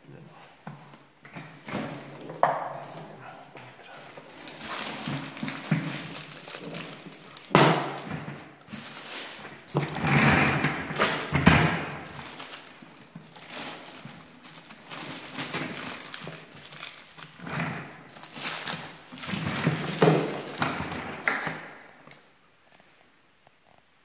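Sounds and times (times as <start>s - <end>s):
plastic sheeting crinkling: 3.8s - 21.7s.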